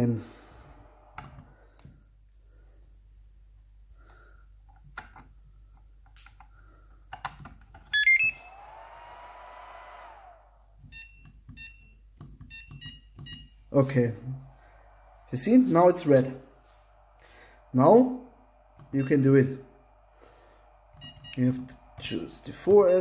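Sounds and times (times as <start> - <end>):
cooling fan whirring: 0.0 - 2.0, 8.1 - 11.2, 13.8 - 23.0
startup beeps: 20.9 - 23.0.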